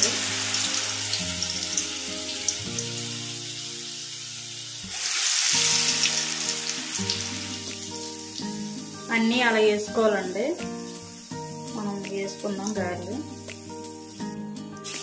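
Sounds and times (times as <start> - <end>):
deep-frying sizzle: 0.0 - 15.0.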